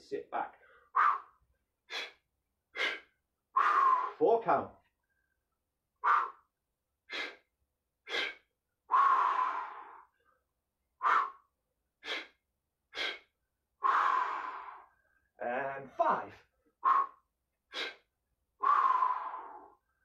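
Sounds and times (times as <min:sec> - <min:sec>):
man breathing heavily: 0:00.6 - 0:04.2, 0:07.1 - 0:10.2, 0:11.0 - 0:15.3, 0:16.7 - 0:19.9.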